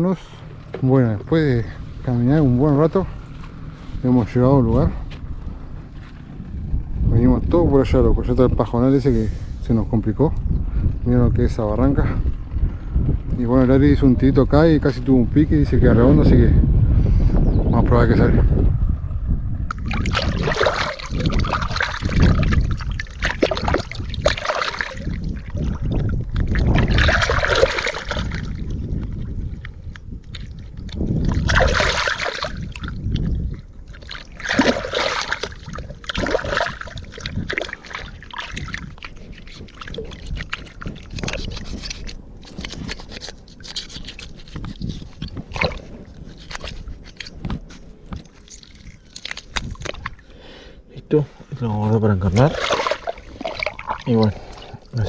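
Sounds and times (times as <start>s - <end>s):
river water splashing: 19.7s - 28.8s, 30.3s - 41.4s, 48.2s - 50.4s, 52.4s - 55.0s.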